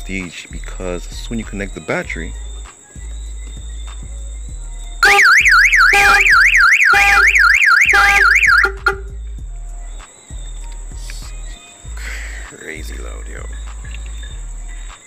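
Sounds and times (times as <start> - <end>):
car alarm siren warbling: 5.0 - 9.2.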